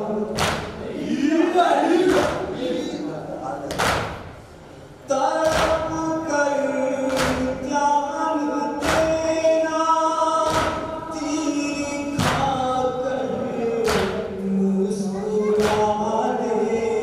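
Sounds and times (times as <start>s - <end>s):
men chanting in unison: 0.0s - 3.6s, 5.1s - 17.0s
chest-beating slaps: 0.4s - 0.8s, 3.7s - 4.3s.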